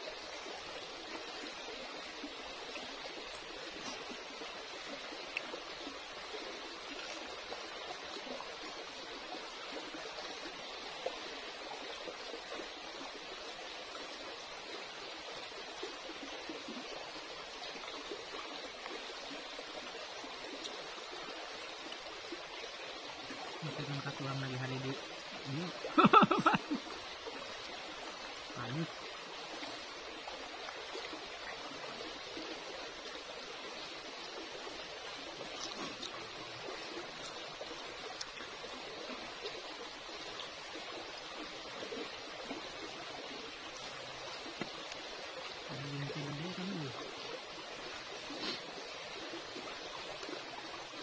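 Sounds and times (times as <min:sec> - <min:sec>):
stream running over rocks: 0:00.0 - 0:51.0.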